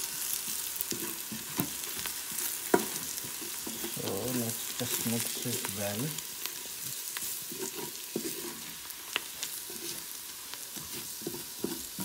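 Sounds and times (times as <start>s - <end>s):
onions sizzling in a pot: 0.0s - 12.0s
wooden spatula stirring and scraping: 0.0s - 12.0s.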